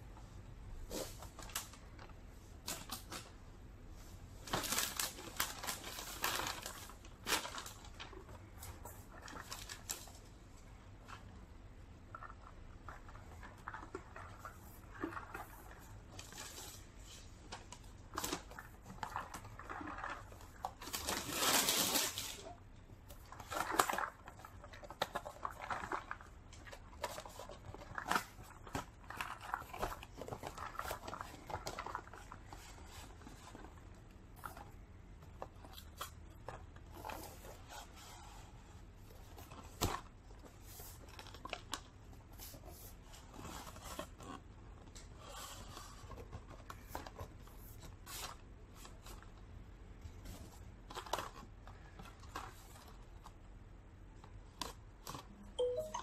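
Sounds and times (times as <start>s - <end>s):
plastic bag crinkling: 4.4s - 10.3s, 12.1s - 34.9s.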